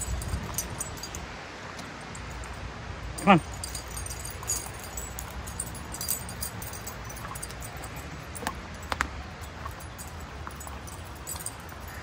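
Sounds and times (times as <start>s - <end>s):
dog harness tags jingling: 0.0s - 12.0s
low steady rumble: 0.0s - 12.0s.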